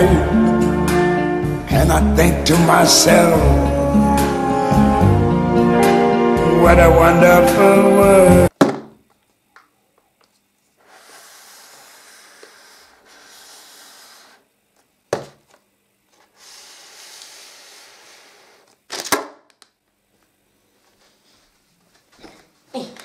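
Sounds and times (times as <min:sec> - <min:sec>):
cardboard boxes knocking on table: 0:08.6 - 0:09.0, 0:15.1 - 0:15.4
shuffling and rustling: 0:20.2 - 0:23.0.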